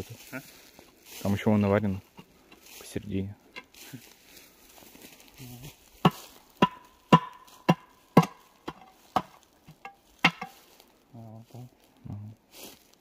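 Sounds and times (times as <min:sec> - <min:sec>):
pipe ringing: 0:06.0 - 0:10.6
rod knocking on metal pipe: 0:06.0 - 0:10.6.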